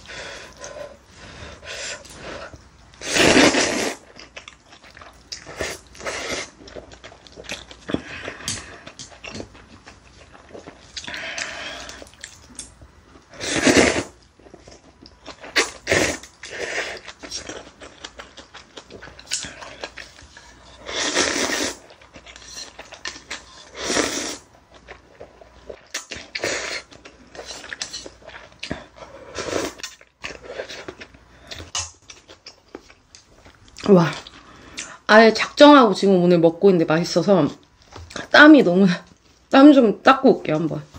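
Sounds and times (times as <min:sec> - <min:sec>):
noodles and broth slurping: 0:00.0 - 0:04.2, 0:05.4 - 0:06.9, 0:13.3 - 0:14.2, 0:20.5 - 0:24.5, 0:26.2 - 0:31.1
chewing: 0:04.0 - 0:13.3, 0:14.2 - 0:23.8.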